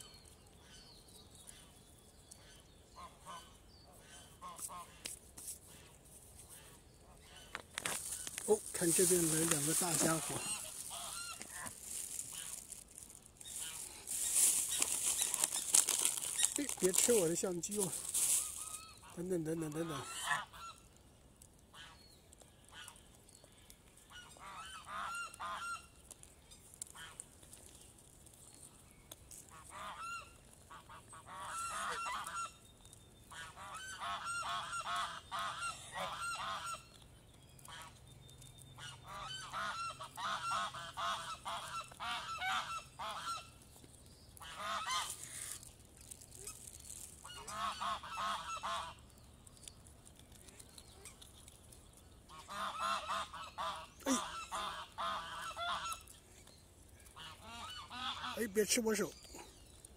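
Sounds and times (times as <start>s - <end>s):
waterfowl honking: 7.2s - 12.8s, 13.4s - 20.9s, 24.1s - 26.0s, 29.5s - 32.6s, 33.3s - 36.9s, 38.8s - 43.6s, 44.4s - 45.2s, 47.2s - 49.0s, 52.3s - 56.1s, 57.1s - 58.5s.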